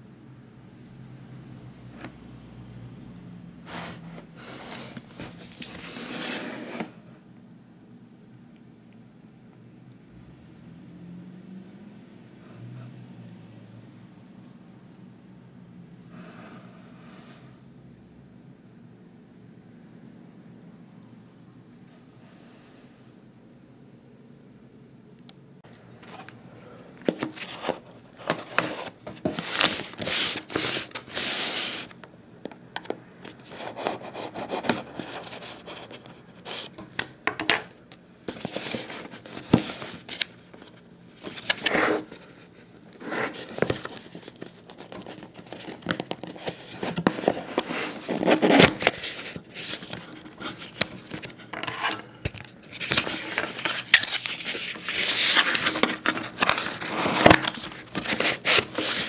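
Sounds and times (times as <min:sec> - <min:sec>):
cardboard sleeve rubbing and scraping: 0:03.7 - 0:07.0, 0:27.3 - 0:31.9, 0:41.3 - 0:42.2, 0:43.0 - 0:52.0, 0:52.6 - 0:59.0.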